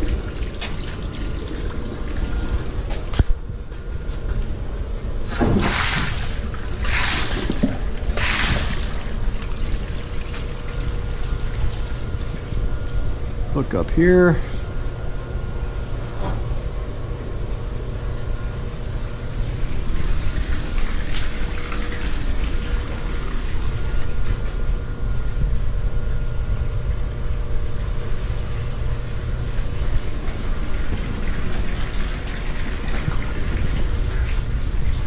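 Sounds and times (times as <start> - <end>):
water rushing through piping: 5.3 - 12.3.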